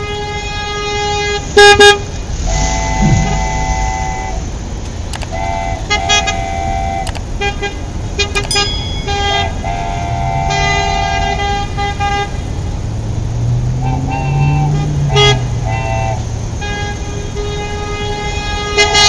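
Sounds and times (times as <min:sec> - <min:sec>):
vehicle horn toots: 0:00.0 - 0:04.5, 0:05.3 - 0:12.4, 0:14.7 - 0:19.0
low hum: 0:02.4 - 0:04.8
sharp clicks: 0:05.1 - 0:05.4, 0:07.1 - 0:07.3, 0:08.4 - 0:08.6.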